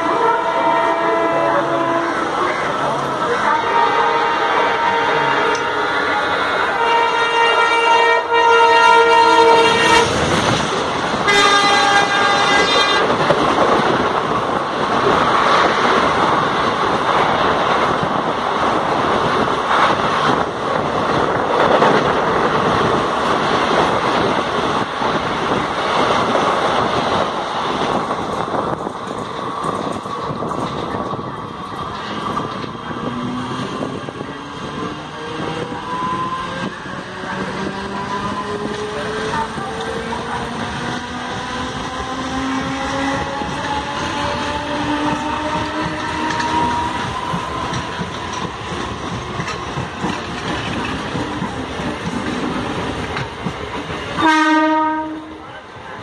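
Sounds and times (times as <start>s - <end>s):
train horn blasts: 0.0s - 2.7s, 3.3s - 6.0s, 6.6s - 10.4s, 11.2s - 13.2s, 54.2s - 55.4s
rising whine of accelerating train: 0.0s - 56.0s
train wheels on rails rushing past: 0.0s - 56.0s.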